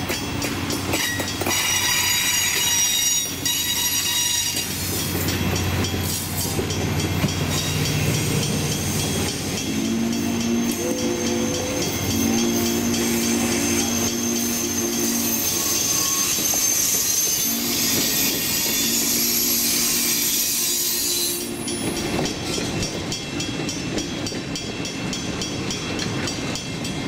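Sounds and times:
train clattering over track: 0.0 - 27.0
train wheels squealing: 0.1 - 23.0
distant train horn: 9.6 - 21.8.

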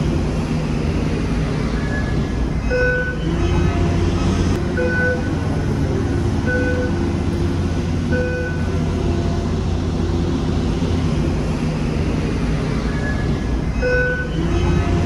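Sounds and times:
heavy machinery rumbling: 0.0 - 15.0
short electronic beep: 1.9 - 3.6, 13.8 - 14.4.

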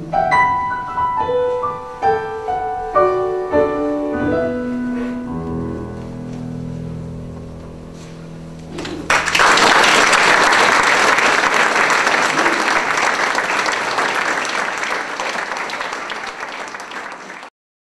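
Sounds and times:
piano chord: 0.0 - 9.6
audience applause: 9.0 - 17.5.

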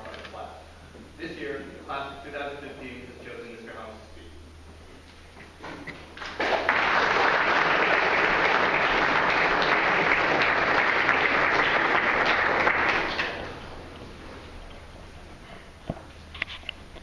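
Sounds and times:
audience applauding: 6.2 - 13.8.

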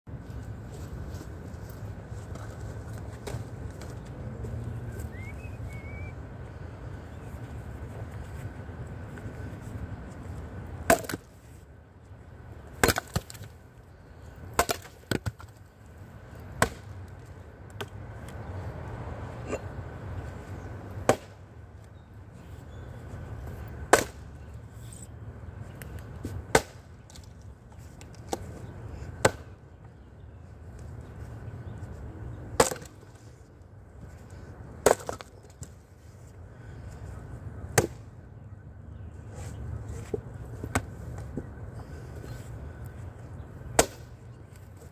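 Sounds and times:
axe chopping log: 10.8 - 11.3, 12.8 - 13.5, 14.5 - 15.5, 16.6 - 16.9, 21.0 - 21.4, 23.9 - 24.2, 26.5 - 26.8, 29.2 - 29.5, 32.6 - 33.0, 34.8 - 35.6, 37.7 - 38.0, 43.7 - 44.1.

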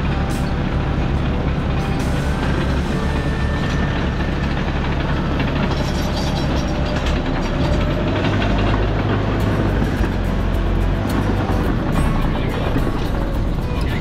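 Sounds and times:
heavy engine droning: 0.0 - 14.0.

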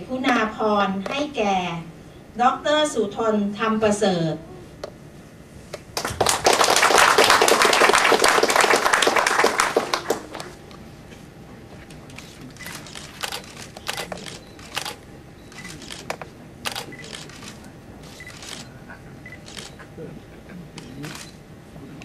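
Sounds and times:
room murmur: 0.0 - 22.0
camera shutters clicking: 12.2 - 18.7, 19.5 - 19.8.

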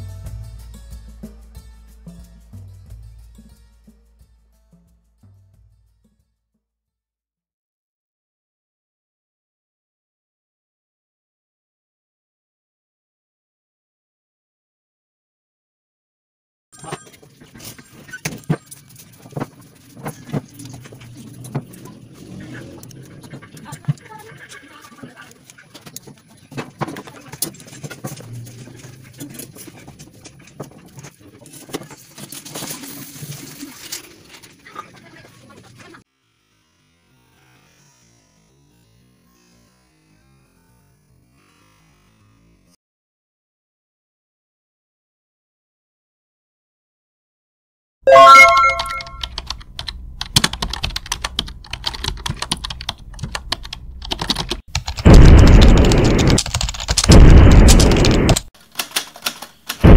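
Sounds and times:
loud rushing noise: 55.0 - 56.4, 57.1 - 58.4.

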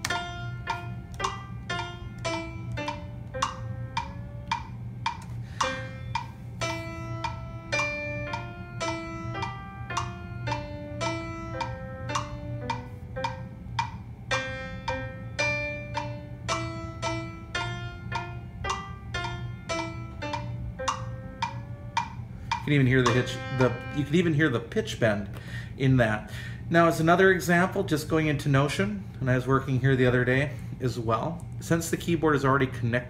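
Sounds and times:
percussion beat: 0.0 - 14.1, 17.6 - 24.3
plucked synth melody: 0.0 - 24.8.

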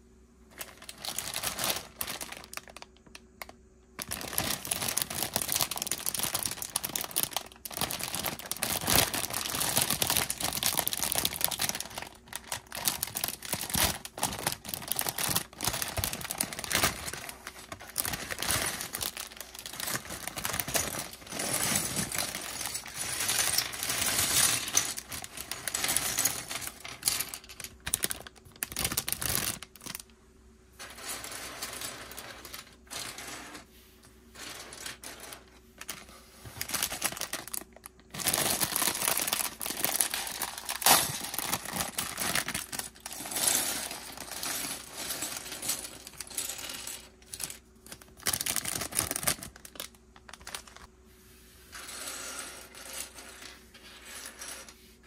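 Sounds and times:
plastic bags crinkling and tearing: 0.5 - 30.1, 35.8 - 46.4, 47.2 - 50.9
plastic bricks clattering on wood: 4.0 - 30.0.

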